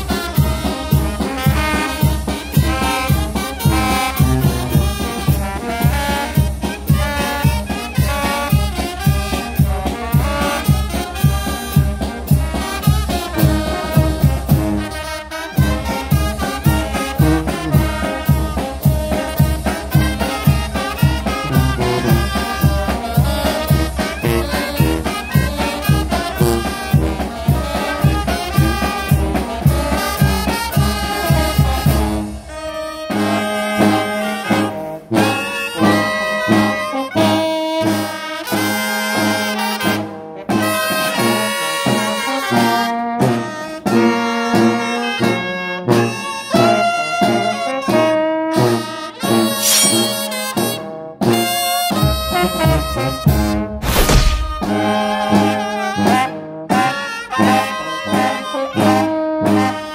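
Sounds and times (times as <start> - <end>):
brass band playing: 0.0 - 59.9
low drum beat: 53.8 - 54.9.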